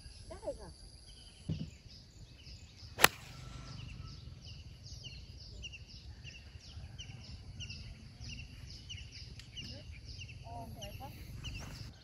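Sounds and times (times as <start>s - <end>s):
high bird chirps: 0.0s - 12.0s
golf club striking ball: 3.0s - 5.2s.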